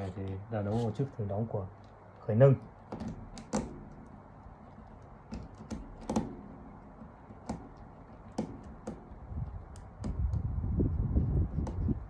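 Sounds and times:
screwdriver clicks and taps: 2.6 - 10.5, 11.5 - 11.9.

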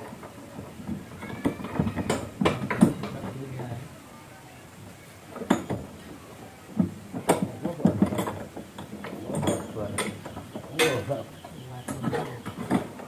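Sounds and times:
speaker cabinets knocking and clunking: 0.6 - 3.4, 6.8 - 13.0
men talking: 2.6 - 4.0, 7.2 - 12.7.

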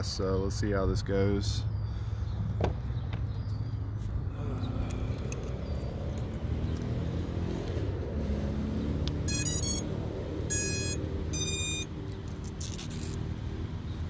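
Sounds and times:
electronic beeps: 9.2 - 9.9, 10.5 - 11.9
quadcopter startup tones: 9.2 - 9.9, 10.5 - 11.9.

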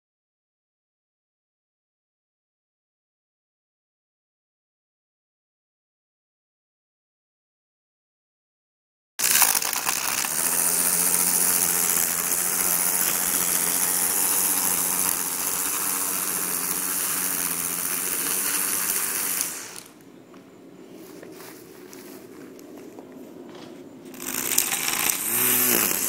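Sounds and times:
string trimmer motor humming: 9.2 - 20.0, 24.1 - 26.0
trimmer line cutting grass: 9.2 - 20.0, 24.1 - 26.0.

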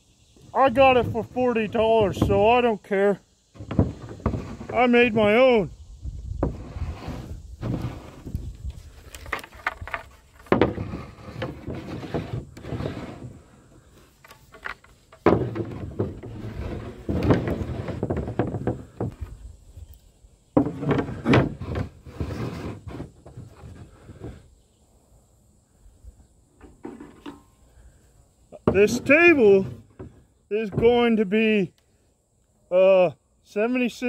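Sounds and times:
wooden strips clattering: 0.6 - 2.7, 3.5 - 5.6, 6.4 - 19.5, 20.6 - 24.4, 28.6 - 31.2.

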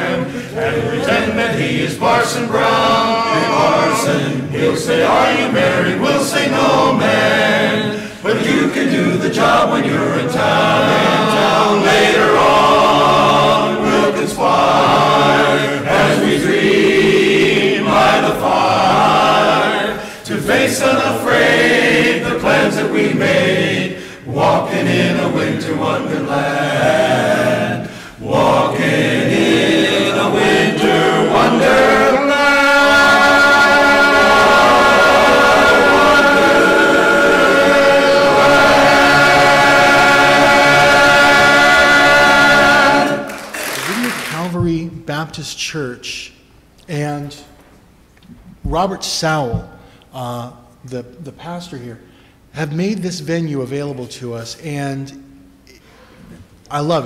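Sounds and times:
men's chorus singing in harmony: 0.0 - 43.4.

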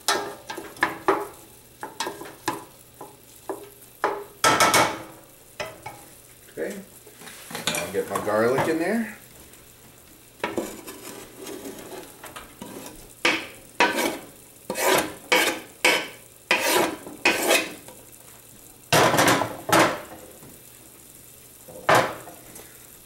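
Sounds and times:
soft sizzle from pan: 0.0 - 23.0
scraping on wooden cutting board: 10.4 - 13.1, 13.8 - 17.8.

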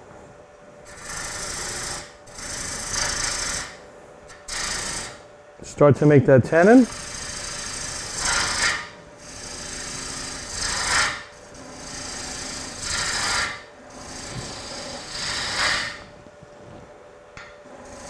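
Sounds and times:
gouge cutting wood on lathe: 0.9 - 3.8, 4.4 - 5.1, 6.9 - 16.0.

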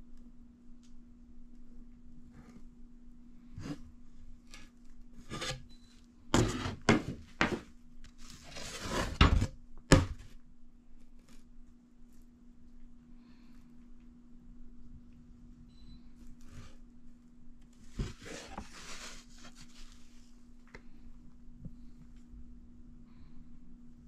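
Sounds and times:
faint steady hum: 0.0 - 24.0
wooden sheets rustling and scraping: 6.4 - 9.5, 17.8 - 20.2.

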